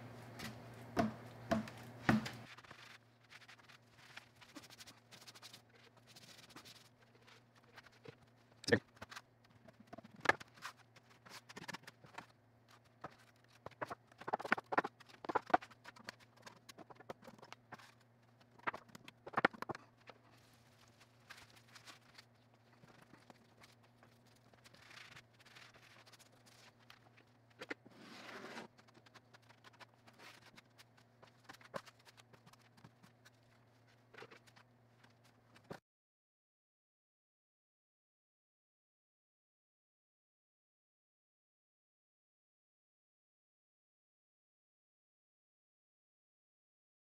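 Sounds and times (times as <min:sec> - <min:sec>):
low steady hum: 0:00.0 - 0:14.3
trowel scraping: 0:27.6 - 0:28.8.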